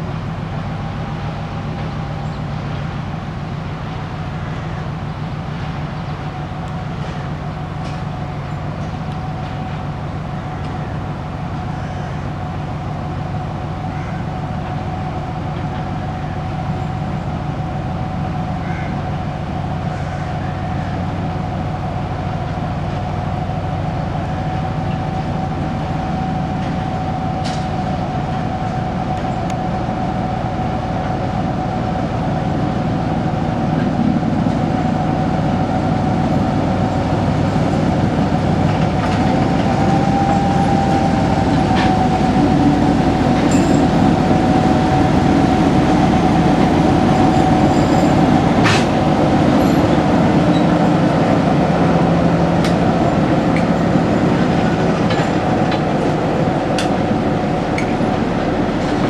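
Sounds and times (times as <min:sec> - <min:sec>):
diesel locomotive engine running: 0:00.0 - 0:59.0
wheels clicking on track: 0:33.7 - 0:59.0.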